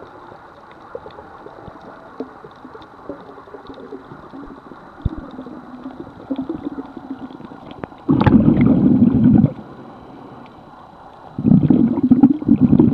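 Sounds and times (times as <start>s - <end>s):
faint clicks: 0.0s - 8.1s, 9.4s - 11.3s
muffled underwater noise: 0.0s - 12.9s
rushing rumble of water: 3.0s - 10.0s, 11.3s - 12.9s.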